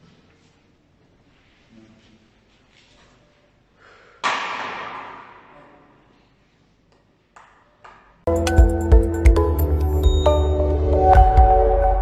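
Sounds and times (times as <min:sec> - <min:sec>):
faint background noise: 0:00.0 - 0:08.3.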